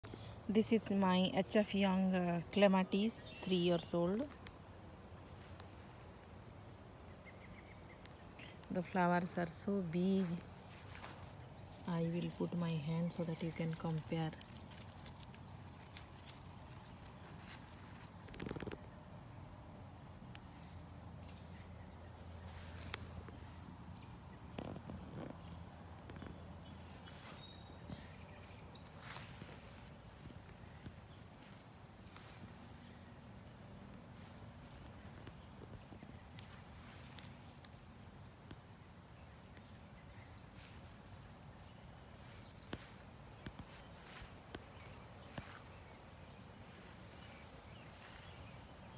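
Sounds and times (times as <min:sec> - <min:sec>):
insect chirping trill: 0:02.3 - 0:08.8, 0:09.4 - 0:48.9
soft rustles and clicks: 0:09.6 - 0:19.0, 0:42.1 - 0:45.8.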